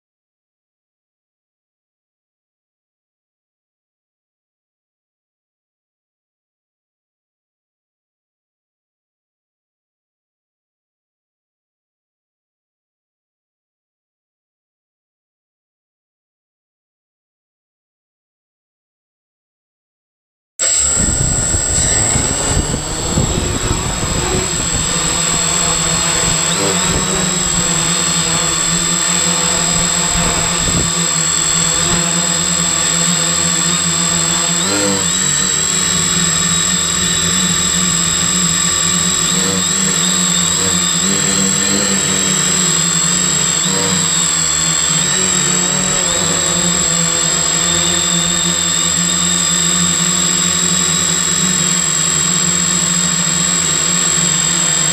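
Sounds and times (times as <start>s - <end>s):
drone propellers buzzing: 20.6s - 54.9s
high motor whine: 20.6s - 54.9s.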